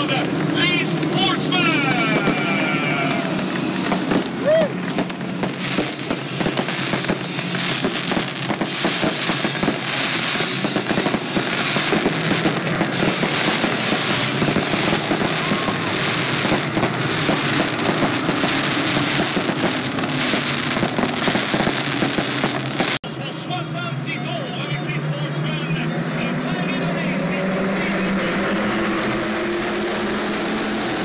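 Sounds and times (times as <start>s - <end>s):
fireworks crackling: 0.0s - 23.0s.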